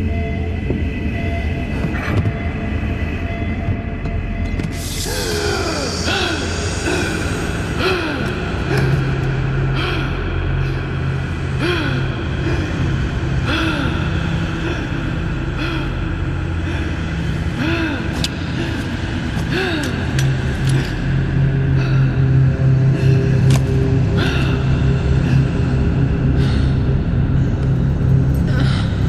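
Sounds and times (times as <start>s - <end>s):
low synthesizer drone: 0.0s - 29.0s
textured hissing layer: 4.7s - 19.4s.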